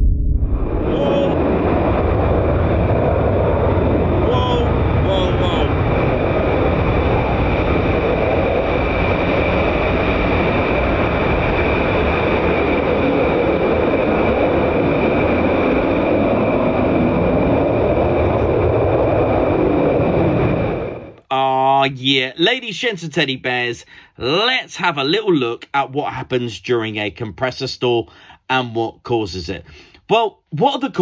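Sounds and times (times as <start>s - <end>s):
high-pitched engine whine: 0.0s - 21.2s
jet engines roaring: 0.0s - 21.2s.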